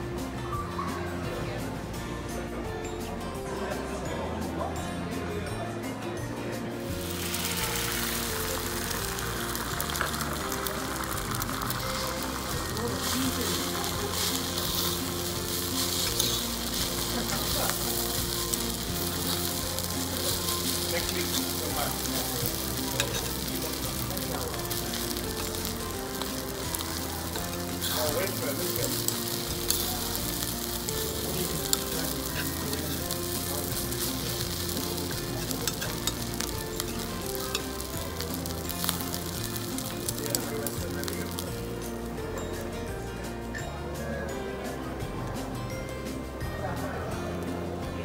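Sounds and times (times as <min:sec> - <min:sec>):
food sizzling on hot plate: 0:06.8 - 0:42.7.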